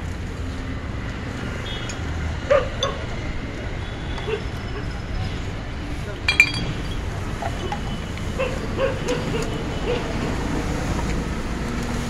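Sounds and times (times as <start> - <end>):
street traffic rumble: 0.0 - 12.0
bottles and litter clinking: 6.3 - 7.0.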